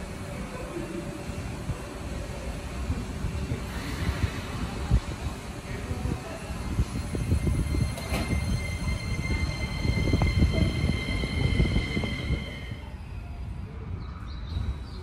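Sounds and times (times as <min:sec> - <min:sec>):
train running gear rumble: 0:00.0 - 0:14.9
high-pitched wheel squeal: 0:07.5 - 0:13.2.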